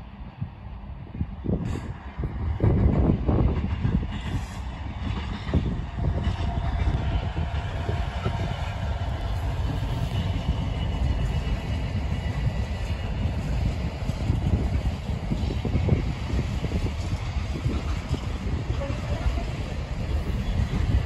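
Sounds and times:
freight train rumbling over rails: 0.0 - 21.0.

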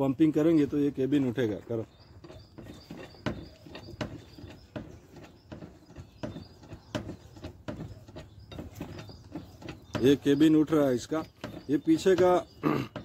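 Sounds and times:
hydraulic hand pump clicking: 2.2 - 13.0.

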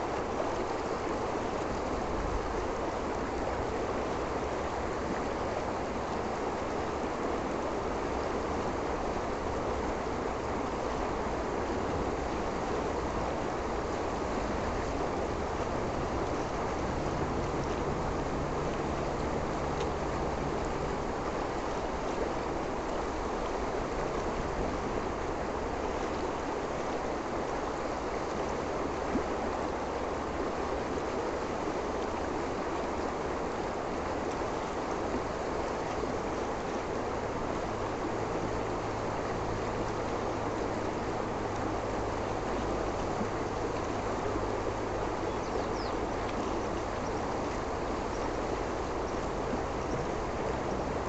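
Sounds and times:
river rushing over stones: 0.0 - 51.0.

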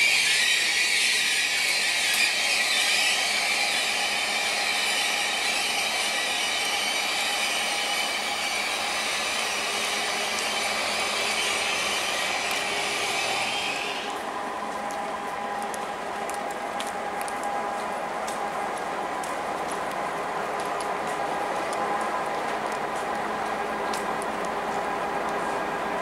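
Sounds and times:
train rolling slowly with hiss: 0.0 - 26.0.

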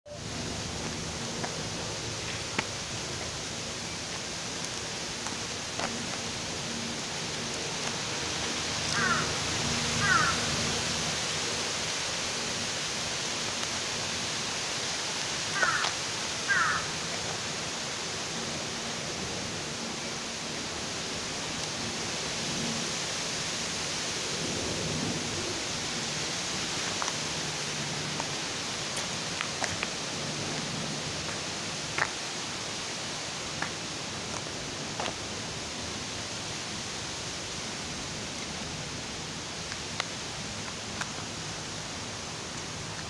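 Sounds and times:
outdoor background hiss: 0.1 - 43.0
bird calls: 9.0 - 9.3, 10.0 - 10.5.

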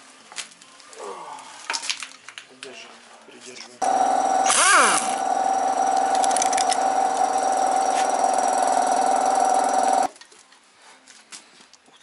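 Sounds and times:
motor running with high hum: 3.8 - 10.1.

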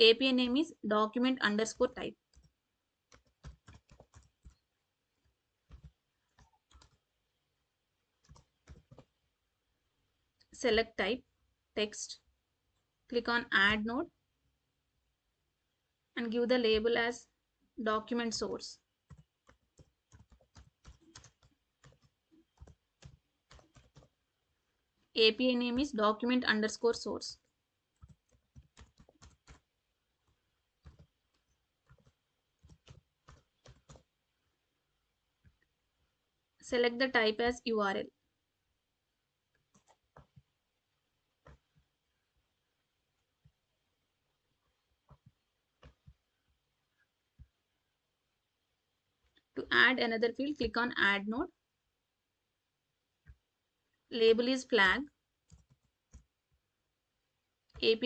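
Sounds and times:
faint keyboard typing: 1.2 - 9.6, 18.1 - 37.7, 39.3 - 48.4, 53.0 - 58.0
faint keyboard keystrokes: 30.3 - 34.1.

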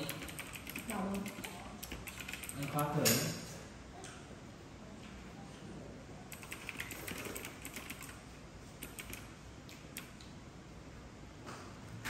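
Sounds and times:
typing on computer keyboard: 0.0 - 3.2, 6.3 - 8.2, 8.8 - 10.2.

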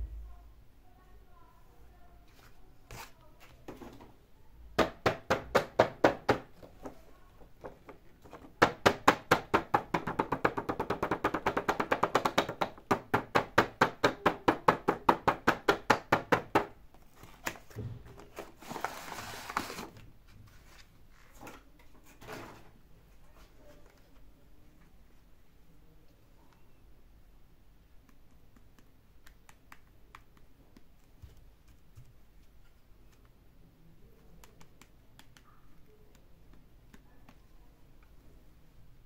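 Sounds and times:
fingertips tapping on cardboard box: 8.6 - 16.8
cardboard box rustling: 17.0 - 21.4.

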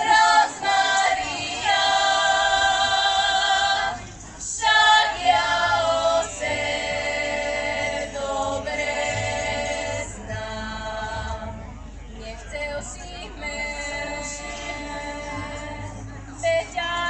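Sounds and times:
women's choir singing unaccompanied: 0.0 - 17.0.

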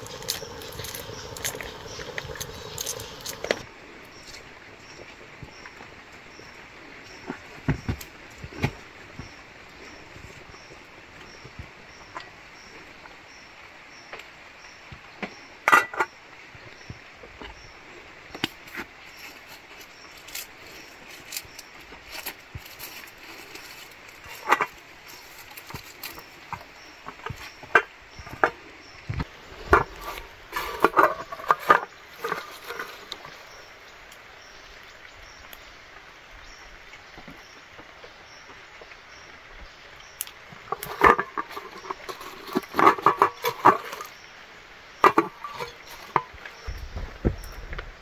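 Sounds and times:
cooking pot clattering: 0.0 - 3.6, 15.7 - 16.1, 29.7 - 33.1, 40.7 - 44.1, 45.0 - 46.4
firewood sticks knocking: 0.0 - 3.6, 24.2 - 28.6, 29.2 - 33.3, 40.7 - 44.1, 45.0 - 46.6
soft steady hiss: 0.0 - 48.0.

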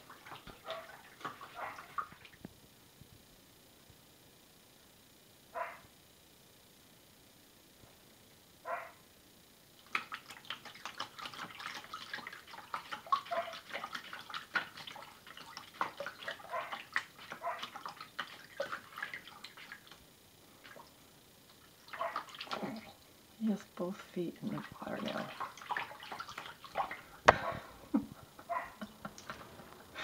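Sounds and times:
cat splashing water: 0.0 - 2.4, 9.8 - 20.0, 20.6 - 23.0, 23.6 - 27.7.

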